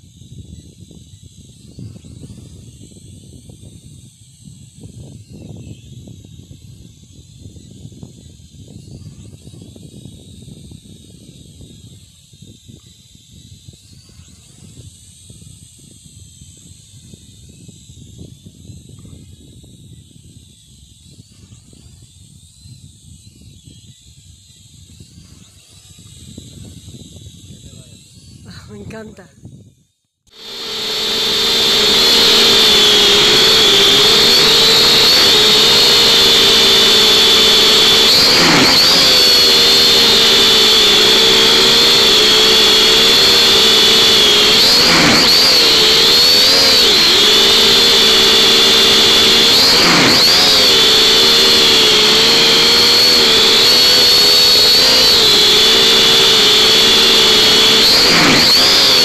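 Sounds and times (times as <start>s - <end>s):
drone propellers whining: 30.3s - 59.0s.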